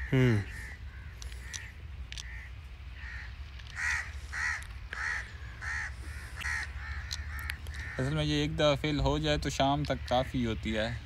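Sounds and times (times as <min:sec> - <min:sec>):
crow cawing: 0:00.0 - 0:08.6
faint clicks: 0:01.1 - 0:02.4, 0:06.4 - 0:08.0.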